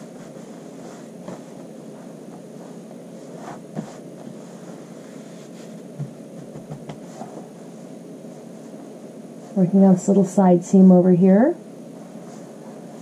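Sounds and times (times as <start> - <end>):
hands brushing fabric on paper: 0.0 - 9.6
steady background hum: 0.0 - 13.0.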